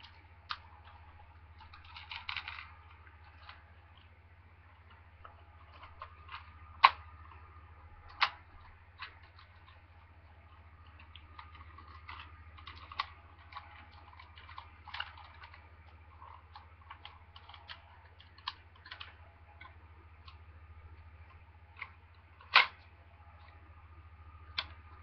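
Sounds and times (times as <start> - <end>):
plastic toy parts clicking and rattling: 0.0 - 4.1, 8.1 - 9.8, 10.5 - 20.4, 21.3 - 22.8, 24.5 - 25.0
faint steady hum: 0.0 - 25.0
loud plastic snap: 22.5 - 22.8.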